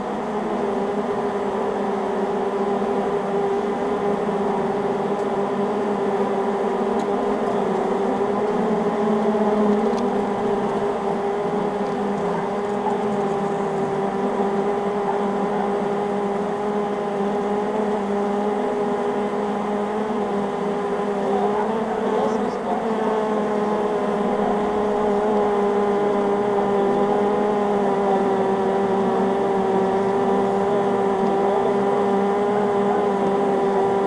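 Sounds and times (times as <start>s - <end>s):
bees humming: 0.0s - 34.0s.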